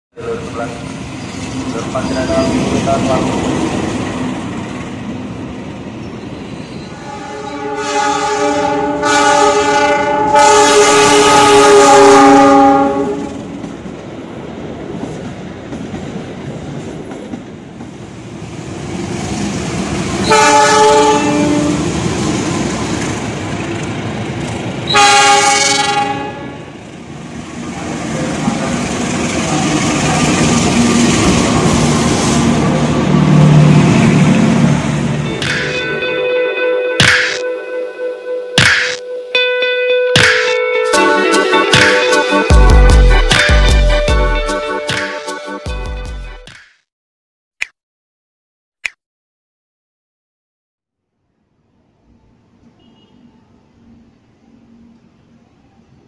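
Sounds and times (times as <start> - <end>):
rumble of passing trains: 0.2 - 43.3, 51.4 - 56.0
locomotive horn blasts: 7.0 - 13.4, 20.2 - 21.8, 24.9 - 26.6, 35.3 - 44.9.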